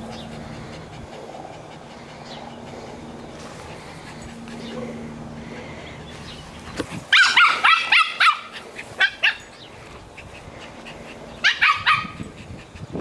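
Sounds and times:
small dog yapping: 0:07.1 - 0:09.4, 0:11.4 - 0:12.2.

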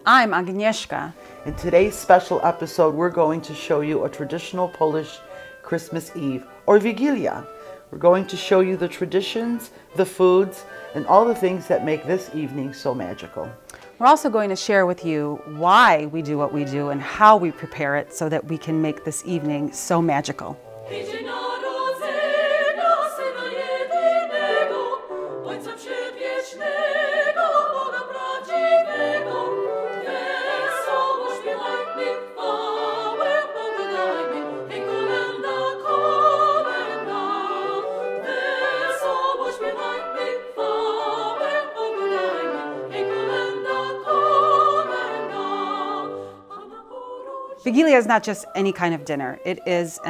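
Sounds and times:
orchestral accompaniment: 0:00.0 - 0:46.6
choir singing with vibrato: 0:20.6 - 0:50.0.

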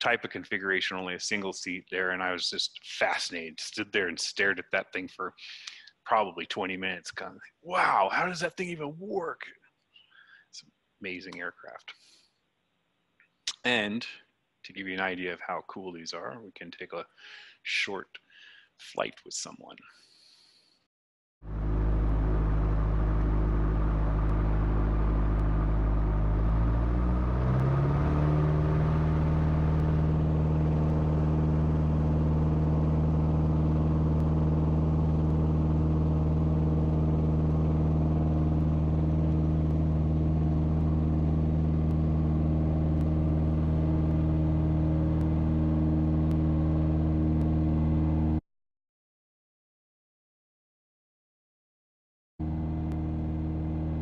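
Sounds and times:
propeller aircraft engine drone: 0:21.5 - 0:48.4, 0:52.4 - 0:54.0.

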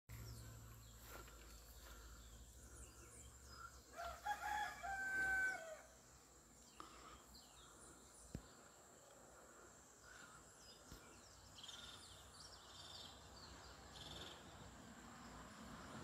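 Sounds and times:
faint outdoor background: 0:00.0 - 0:16.0
rooster crowing: 0:03.9 - 0:06.0.

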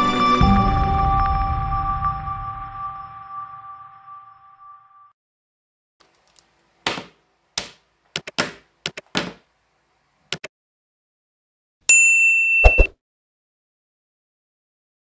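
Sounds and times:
sharp clicks and taps: 0:07.6 - 0:09.3.

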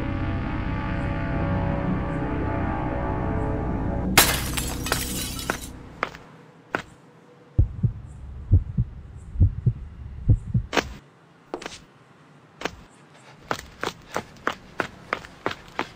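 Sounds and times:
music: 0:00.0 - 0:04.2
shattering crash: 0:04.2 - 0:05.8
heartbeat thumps: 0:07.6 - 0:11.0.

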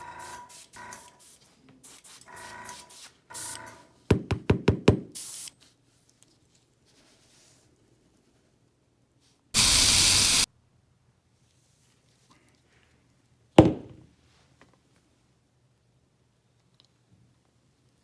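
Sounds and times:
airbrush hissing air: 0:05.2 - 0:05.5, 0:09.6 - 0:10.5.

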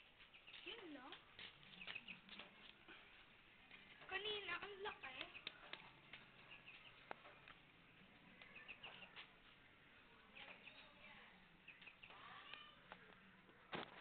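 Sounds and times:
faint high bird chirps: 0:07.9 - 0:09.2, 0:10.4 - 0:12.8.

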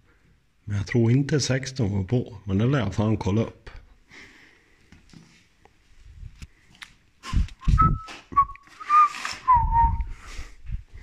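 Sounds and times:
man whistling: 0:07.2 - 0:10.5.

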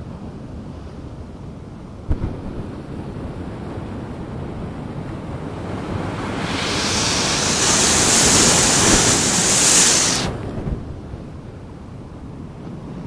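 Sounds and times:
surf churning against rocks: 0:02.6 - 0:10.8
wave breaking with hissing foam: 0:05.5 - 0:10.6.

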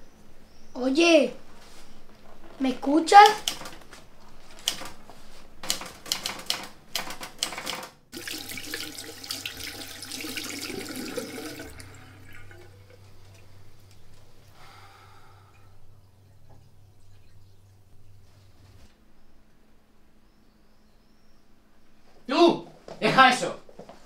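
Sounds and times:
typewriter keys clicking: 0:03.2 - 0:03.9, 0:04.6 - 0:05.0, 0:05.6 - 0:08.0
hands washing under water: 0:08.2 - 0:15.1.

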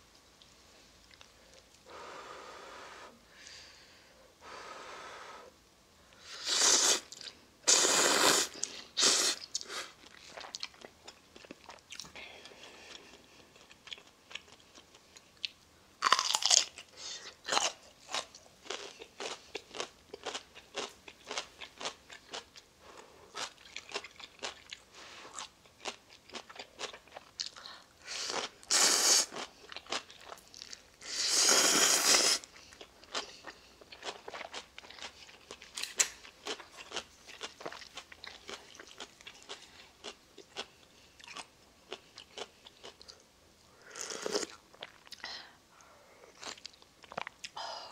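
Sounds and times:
slurping noodles: 0:06.3 - 0:09.7, 0:31.0 - 0:32.5
crunching and chewing: 0:09.5 - 0:30.9, 0:32.4 - 0:43.2, 0:44.0 - 0:45.3, 0:46.3 - 0:47.6.

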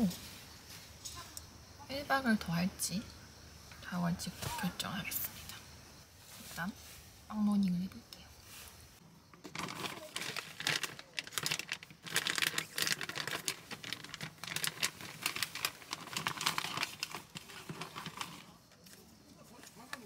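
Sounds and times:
plastic bag crinkling: 0:09.4 - 0:18.6.

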